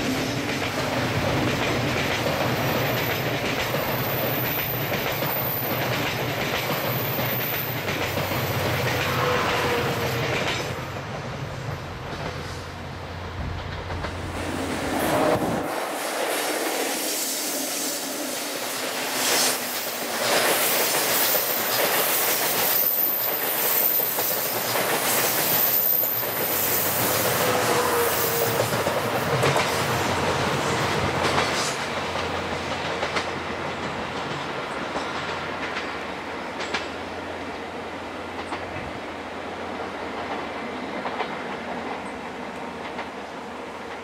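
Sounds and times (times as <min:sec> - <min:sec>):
train wheels clattering over rail joints: 0:00.0 - 0:11.4, 0:13.4 - 0:14.5, 0:19.2 - 0:37.1.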